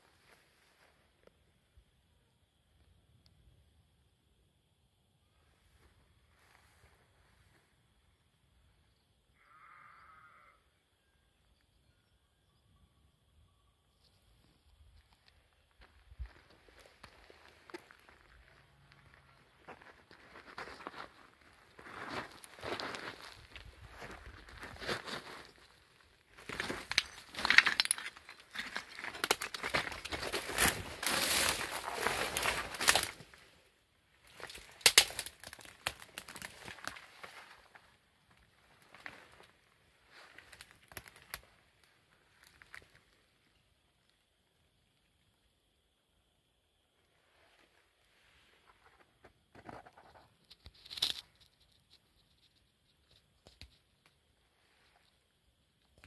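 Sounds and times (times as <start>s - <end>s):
footsteps crunching on trail: 15.1s - 33.4s.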